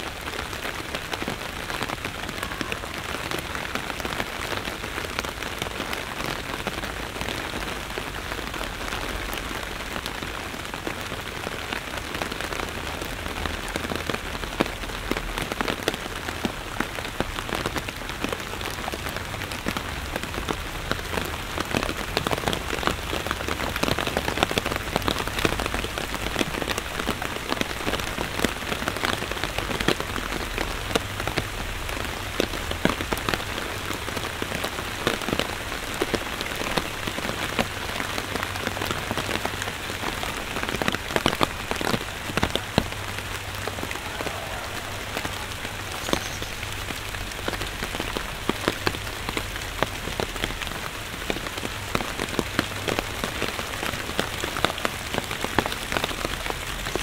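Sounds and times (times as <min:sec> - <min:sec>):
steady rain falling: 0:00.0 - 0:57.0
raindrop hits: 0:19.0 - 0:57.0.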